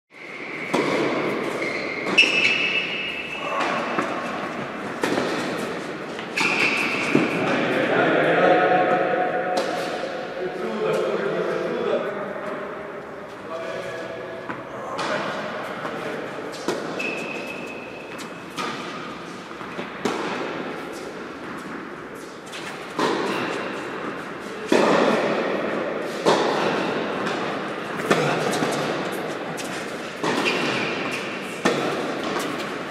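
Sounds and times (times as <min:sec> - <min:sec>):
tennis racket strikes: 0:00.6 - 0:07.4, 0:16.5 - 0:32.9
tennis ball bounces: 0:03.6 - 0:07.4, 0:15.8 - 0:32.9.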